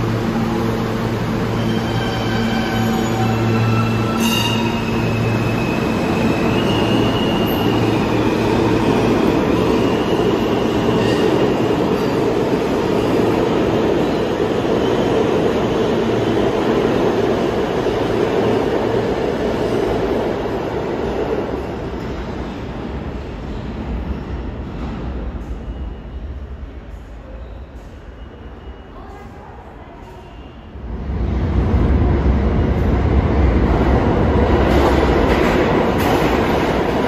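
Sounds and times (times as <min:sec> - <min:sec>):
subway train rumble: 0:00.0 - 0:37.0
high wheel squeal: 0:01.4 - 0:12.2.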